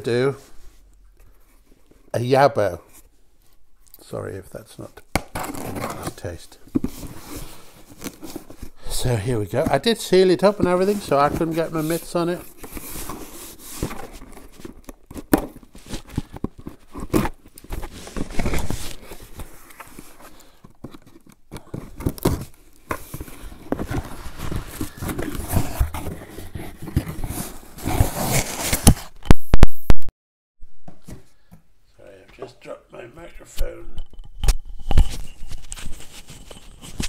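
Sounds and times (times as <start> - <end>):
cardboard handling: 5.2 - 8.8, 9.5 - 29.1.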